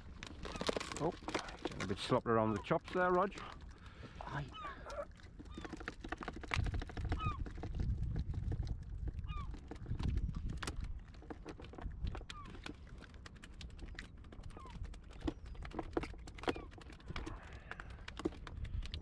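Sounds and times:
fish flapping against dinghy: 0.0 - 19.0
wind rumble on microphone: 6.4 - 13.0, 14.3 - 19.0.

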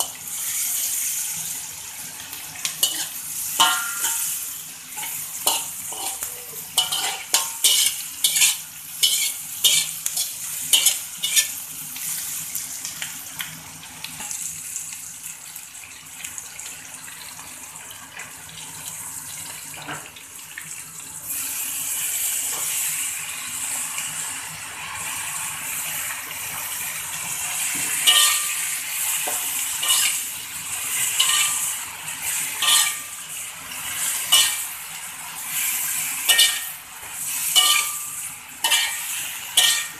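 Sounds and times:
food sizzling in oil: 0.0 - 39.9
metal spatula clinking on wok: 2.8 - 4.4, 5.0 - 11.4, 28.1 - 28.5, 31.2 - 31.6, 32.6 - 33.0, 36.3 - 36.6, 37.6 - 39.0, 39.6 - 39.9.

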